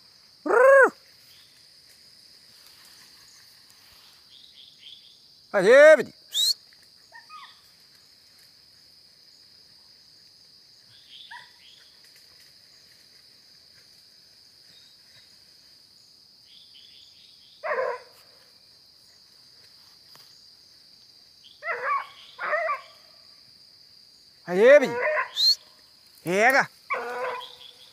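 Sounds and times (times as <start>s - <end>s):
night insects chorus: 0.0s - 27.9s
loud short cry: 0.5s - 1.0s.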